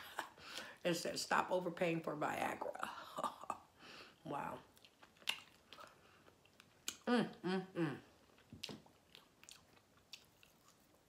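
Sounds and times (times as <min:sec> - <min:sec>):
wet chewing: 0:04.6 - 0:07.0, 0:08.2 - 0:11.0.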